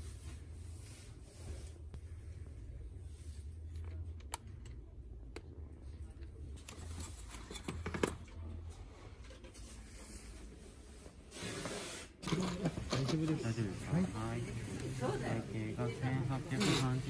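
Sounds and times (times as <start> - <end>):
low steady hum: 0.0 - 11.2.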